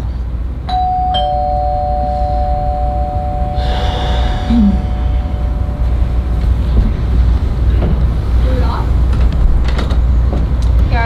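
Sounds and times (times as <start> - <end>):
steady low rumble: 0.1 - 11.0
two-note doorbell chime: 0.7 - 6.5.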